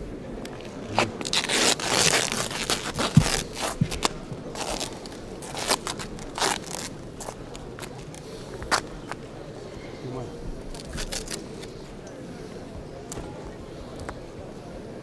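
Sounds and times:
adhesive tape ripping: 0.8s - 8.8s, 10.7s - 11.4s.

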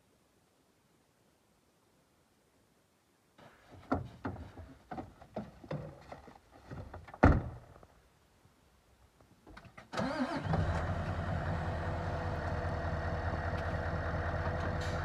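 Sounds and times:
knocks and scuffs climbing: 3.4s - 7.9s.

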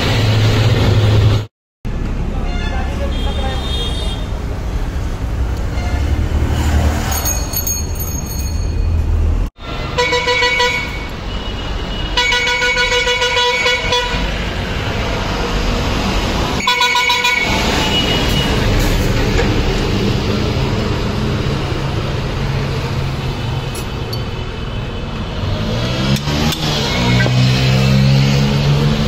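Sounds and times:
low rumble of road traffic: 0.0s - 29.0s
vehicle horn honking: 2.4s - 4.3s, 9.7s - 14.3s, 16.6s - 18.7s.

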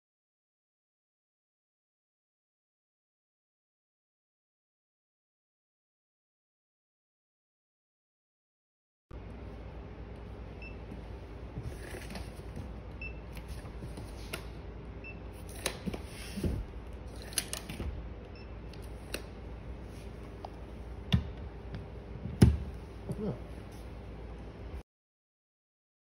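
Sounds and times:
steady low hum: 9.2s - 24.8s.

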